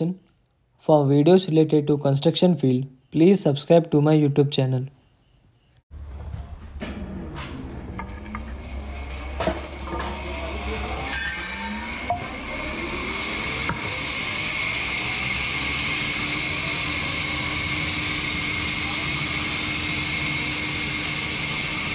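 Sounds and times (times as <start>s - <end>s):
machinery clanks: 5.9s - 16.0s
low motor hum: 5.9s - 21.9s
high saw whine: 7.9s - 21.9s.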